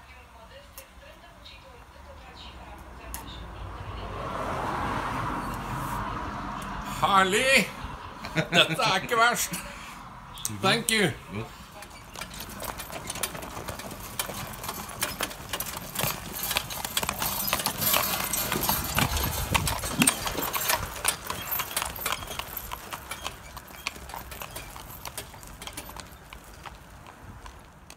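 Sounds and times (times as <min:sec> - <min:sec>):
horse hooves clip-clopping on road: 0:10.6 - 0:27.9.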